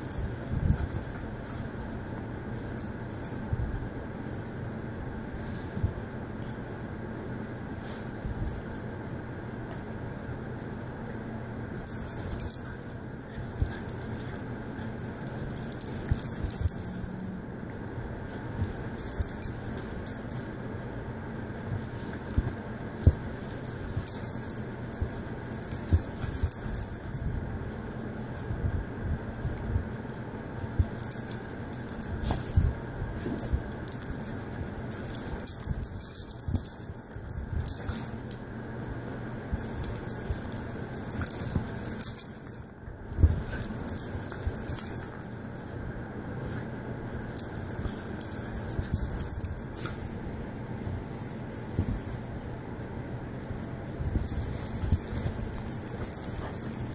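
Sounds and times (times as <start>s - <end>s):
low steady hum: 0.0s - 56.9s
dog collar tags jingling: 11.9s - 17.4s, 21.9s - 28.7s, 30.7s - 38.4s, 39.4s - 45.6s, 46.5s - 50.2s, 53.4s - 56.9s.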